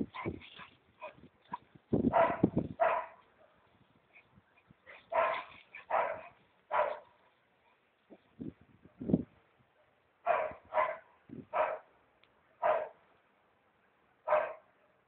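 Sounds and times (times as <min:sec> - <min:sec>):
dog barking: 0:02.1 - 0:03.6, 0:05.0 - 0:07.2, 0:10.2 - 0:11.9, 0:12.6 - 0:13.0, 0:14.3 - 0:14.7.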